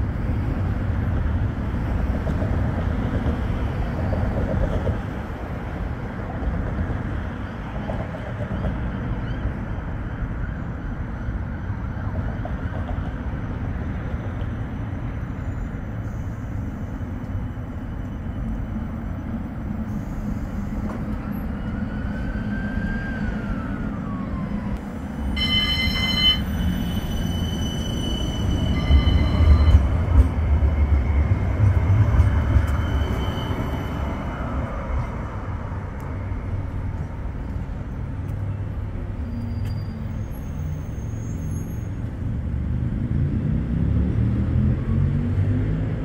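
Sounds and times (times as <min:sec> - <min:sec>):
street noise: 0:00.0 - 0:46.0
tram rumbling past: 0:00.0 - 0:46.0
short high-pitched tone: 0:25.2 - 0:29.9.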